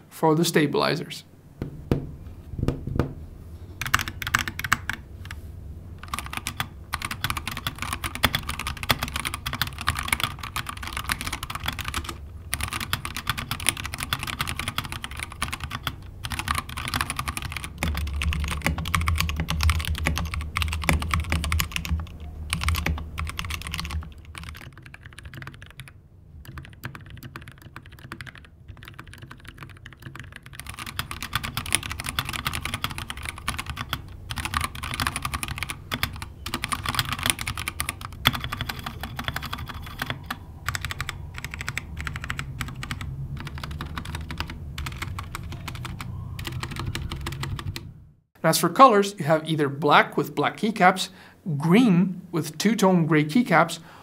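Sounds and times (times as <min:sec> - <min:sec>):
mechanical keyboard typing: 0:03.8 - 0:05.4, 0:06.0 - 0:47.9.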